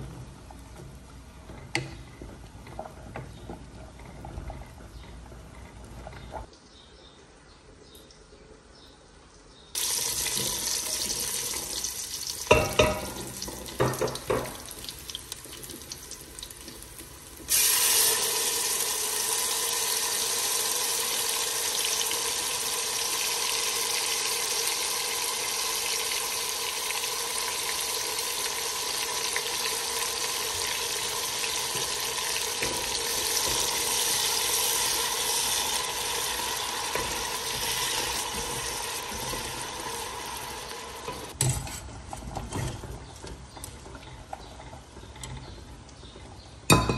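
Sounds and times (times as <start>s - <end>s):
onions frying sizzle: 9.8s - 41.4s
liquid hissing in hot oil: 17.4s - 41.4s.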